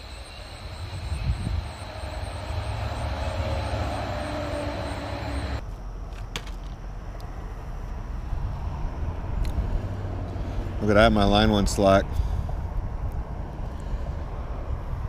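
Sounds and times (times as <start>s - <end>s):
high steady whine: 0.0s - 5.6s
wind rumble on microphone: 0.0s - 6.0s, 6.8s - 15.0s
traffic rumble and hiss on bridge: 0.0s - 15.0s.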